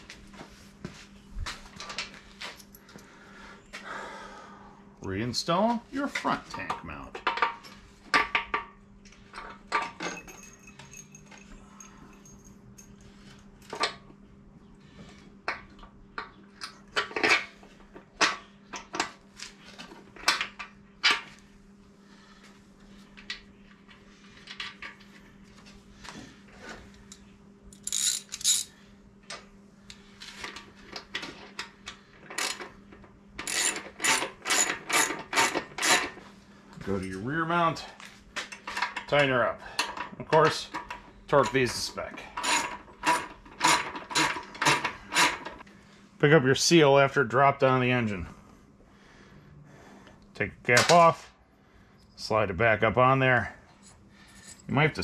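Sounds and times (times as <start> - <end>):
faint steady hum: 0.0 - 55.0
metal parts and tool clinking: 6.1 - 13.0, 27.1 - 28.7, 33.4 - 36.2, 38.4 - 45.6.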